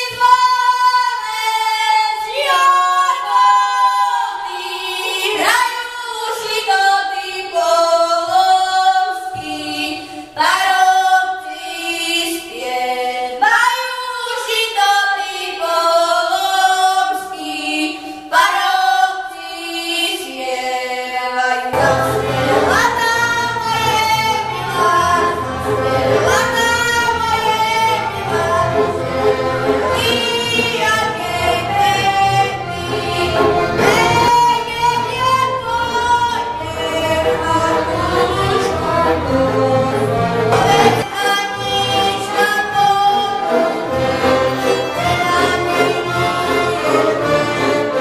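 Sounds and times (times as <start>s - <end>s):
children singing: 0.0s - 13.2s, 21.7s - 48.0s
accordion: 21.7s - 48.0s
double bass: 21.8s - 41.1s
violins: 21.8s - 48.0s.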